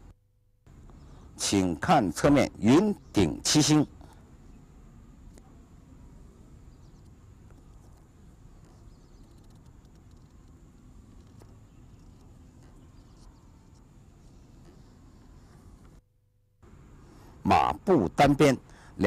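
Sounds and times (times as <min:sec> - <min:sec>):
faint ticks: 0:06.9 - 0:16.0.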